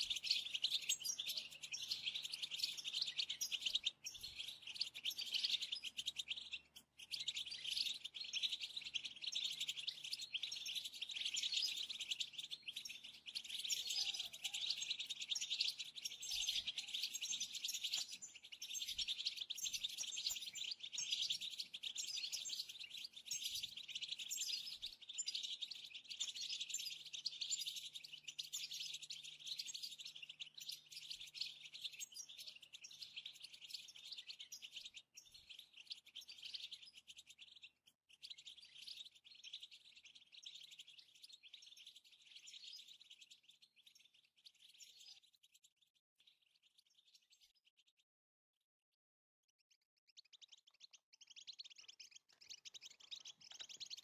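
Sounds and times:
goldfinches twittering: 0.0 - 27.5.

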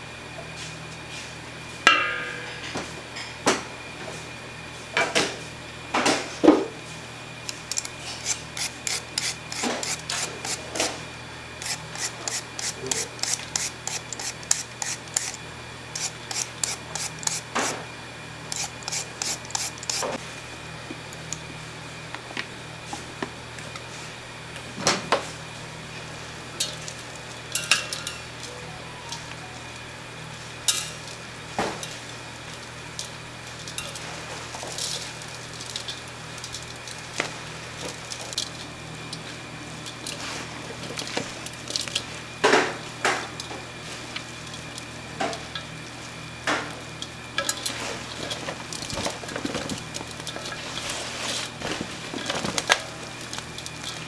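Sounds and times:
steady background hum: 0.0 - 54.0
utensils and dishes clinking: 26.6 - 29.6, 33.6 - 36.6.

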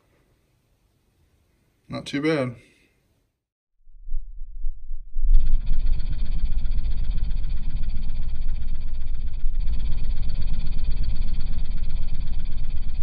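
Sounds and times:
subwoofer playing deep bass: 5.0 - 13.0.

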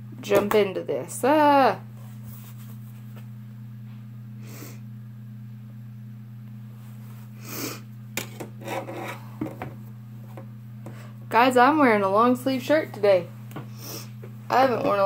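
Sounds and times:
steady low hum: 0.0 - 15.0
person sniffing: 7.4 - 7.9.

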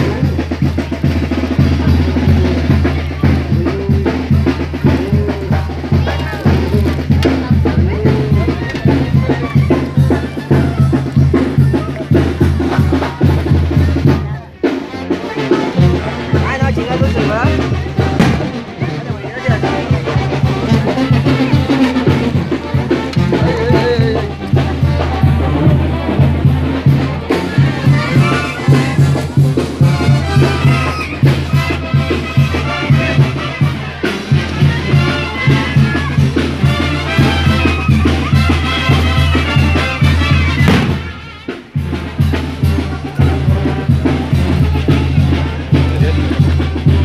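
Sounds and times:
band with brass and drums: 0.0 - 47.0
heavy bass line: 16.0 - 41.2.

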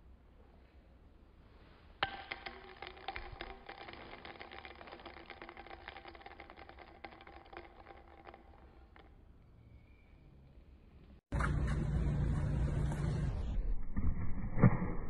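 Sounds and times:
screw cap spinning on bottle: 2.0 - 9.1.

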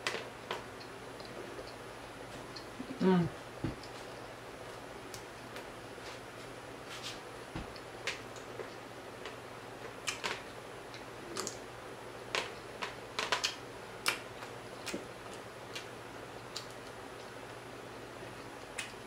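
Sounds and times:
eating clicks and smacks: 7.7 - 11.6, 12.3 - 17.6, 18.3 - 19.0.

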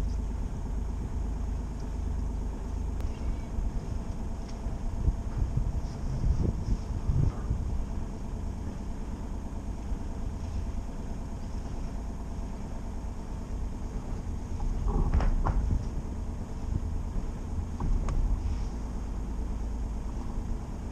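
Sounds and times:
boat engine idling: 0.0 - 20.9
wind buffeting microphone: 3.0 - 11.4, 13.8 - 18.5.

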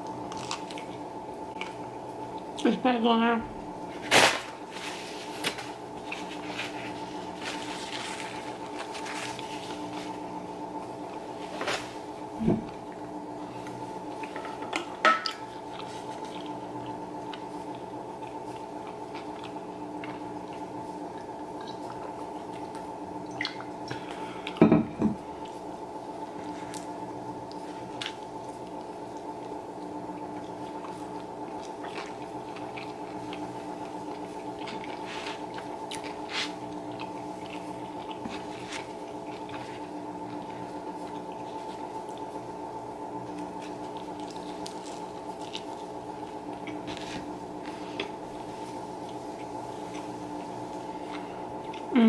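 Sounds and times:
person chewing food: 0.0 - 2.6, 15.2 - 24.6, 25.2 - 42.6, 43.2 - 52.0
steady low hum: 0.0 - 52.0.

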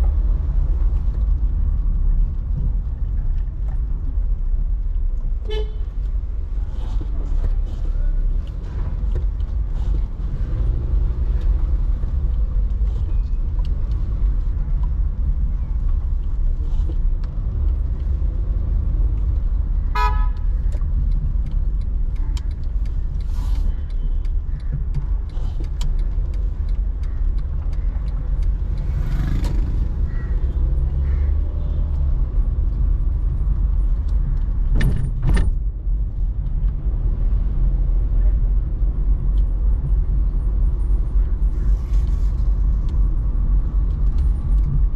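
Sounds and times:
car driving in traffic: 0.0 - 44.9
car horn toot: 5.5 - 5.8, 19.9 - 20.4
sharp clicks: 20.4 - 30.6.

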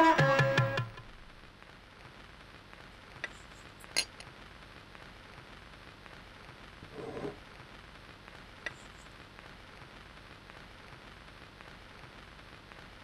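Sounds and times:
background music: 0.0 - 1.3.

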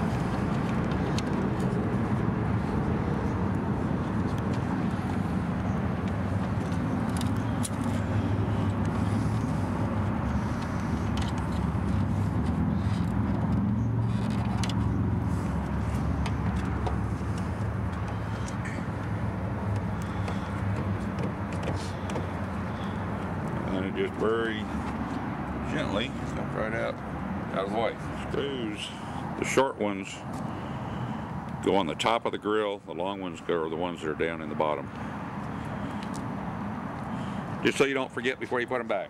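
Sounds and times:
low engine hum: 0.0 - 29.4.

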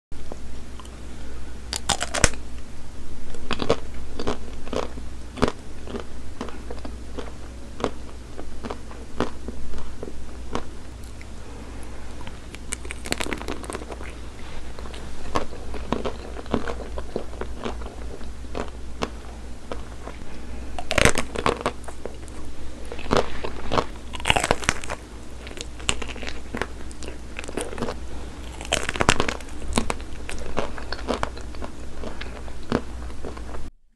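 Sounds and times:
chocolate shell crunching: 1.7 - 2.4, 12.5 - 14.2, 20.8 - 33.4
chewing: 3.4 - 33.6.

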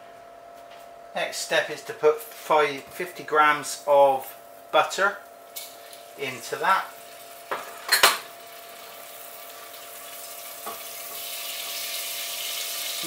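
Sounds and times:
butter sizzling in saucepan: 6.9 - 13.0.

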